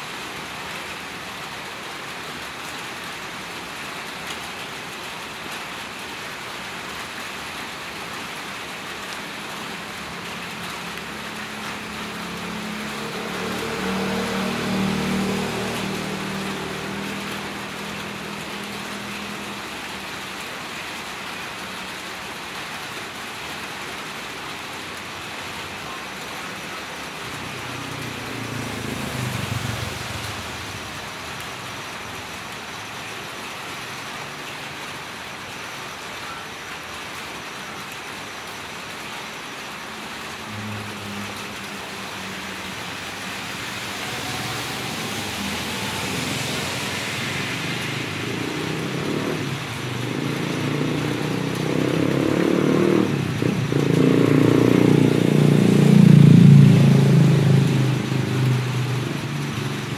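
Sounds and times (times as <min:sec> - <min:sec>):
rain falling on wet road: 0:00.0 - 0:59.9
motor vehicle passing: 0:12.0 - 0:17.8, 0:27.5 - 0:31.2, 0:40.6 - 0:59.9.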